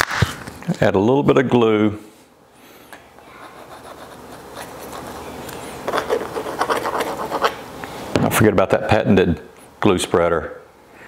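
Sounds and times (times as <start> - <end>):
nozzle scratching on wood: 3.4 - 7.6.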